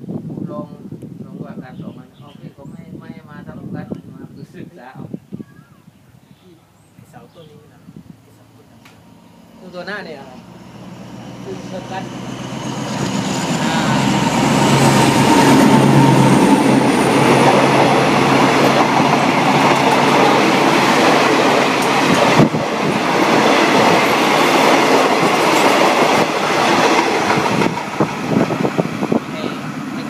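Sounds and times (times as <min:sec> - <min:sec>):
diesel locomotive engine passing: 0:08.1 - 0:30.0
train wheels rolling on rails: 0:08.8 - 0:30.0.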